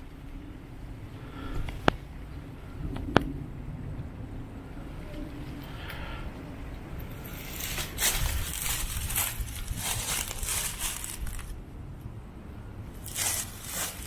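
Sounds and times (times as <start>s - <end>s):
footsteps crunching dry leaves: 7.3s - 11.6s, 13.0s - 14.0s.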